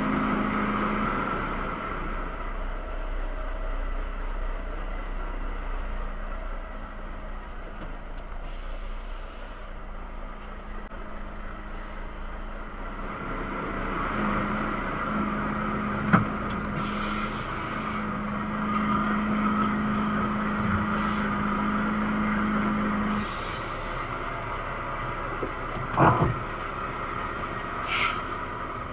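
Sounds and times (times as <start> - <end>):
truck engine and road noise: 0.0 - 28.9
short hisses: 27.8 - 28.3.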